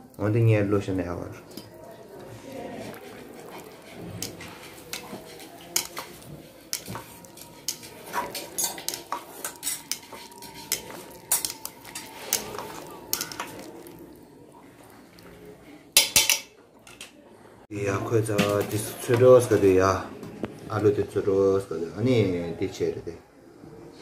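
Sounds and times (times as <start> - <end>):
utensils clinking against steel pot: 2.8 - 14.0, 16.0 - 17.2.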